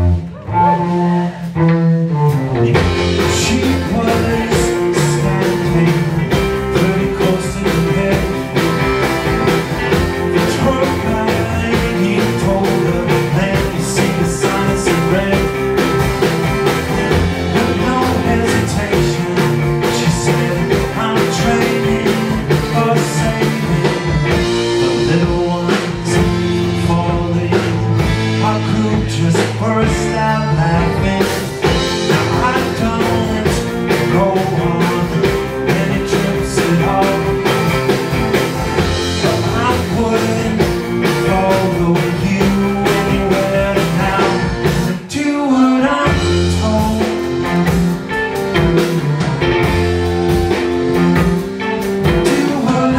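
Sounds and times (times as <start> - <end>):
cello: 0.0 - 2.8
drums: 0.0 - 52.9
electric bass: 0.0 - 52.9
electric guitar: 0.0 - 52.9.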